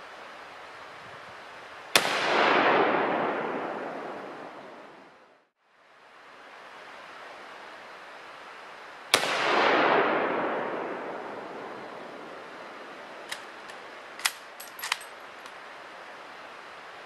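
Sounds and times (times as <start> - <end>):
rifle shot with rolling echo: 1.9 - 5.1, 9.1 - 15.1
rifle bolt metallic clicks: 13.3 - 15.6.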